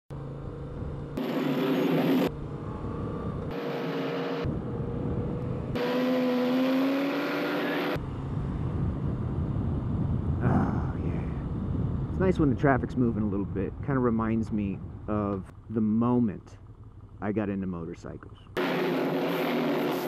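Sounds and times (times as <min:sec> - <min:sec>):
motorcycle engine low rumble: 0:00.1 - 0:03.8, 0:04.4 - 0:05.8, 0:08.0 - 0:18.6
motorcycles droning in traffic: 0:00.1 - 0:20.0.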